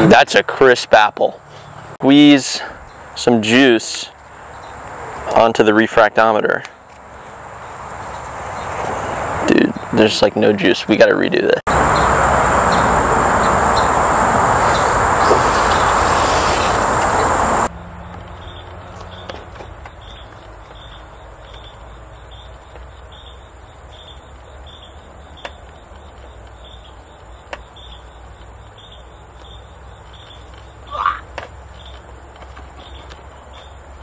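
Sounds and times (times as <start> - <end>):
loud steady hiss: 11.7 - 17.7
steady high whine: 11.7 - 17.7
insects chirping: 11.7 - 34.0.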